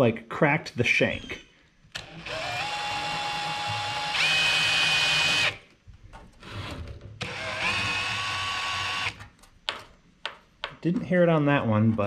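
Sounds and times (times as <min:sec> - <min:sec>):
cordless drill motor whining: 0:02.0 - 0:05.6, 0:06.4 - 0:09.2.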